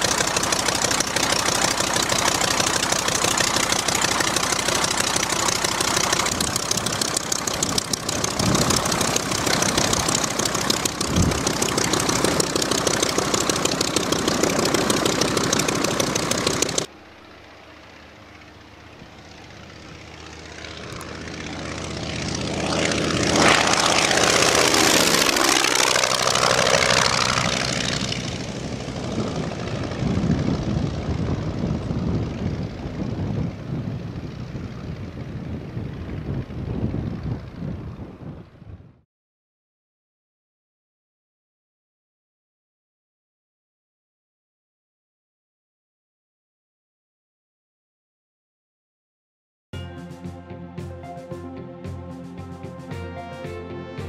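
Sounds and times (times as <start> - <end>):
plane passing overhead: 0.0 - 39.0, 49.8 - 54.0
propeller plane engine running: 0.0 - 39.0, 49.8 - 54.0.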